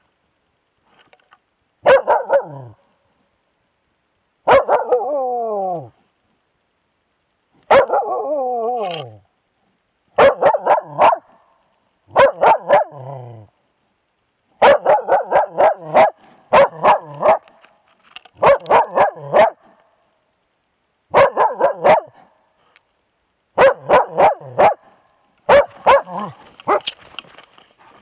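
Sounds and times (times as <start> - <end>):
dog barking: 1.8 - 2.8, 4.4 - 5.2, 7.7 - 8.3, 10.2 - 11.4, 12.1 - 13.3, 14.6 - 17.5, 18.4 - 19.7, 21.1 - 22.3, 23.6 - 24.9, 25.5 - 26.9.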